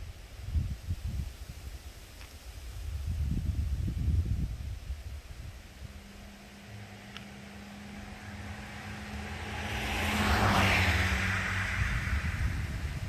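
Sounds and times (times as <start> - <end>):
car driving past: 5.1 - 13.0.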